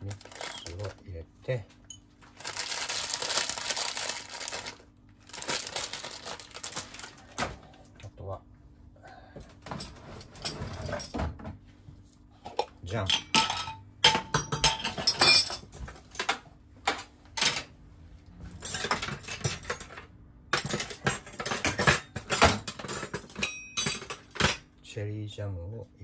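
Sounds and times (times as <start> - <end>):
cutlery clattering against dishes: 12.5 - 16.4, 18.6 - 20.0, 20.6 - 24.6.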